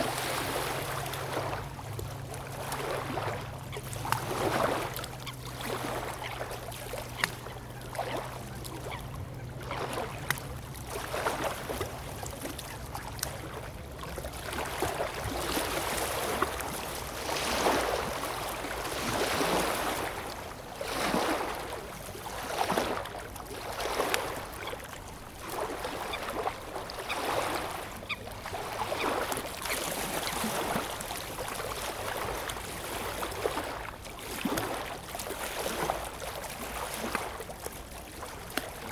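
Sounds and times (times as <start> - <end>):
waves lapping against shore: 0.0 - 38.9.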